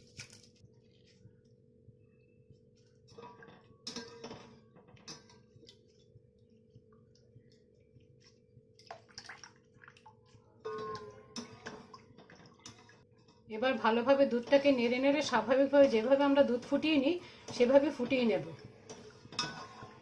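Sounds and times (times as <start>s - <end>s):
metal spoon scraping a pan: 18.8s - 20.0s.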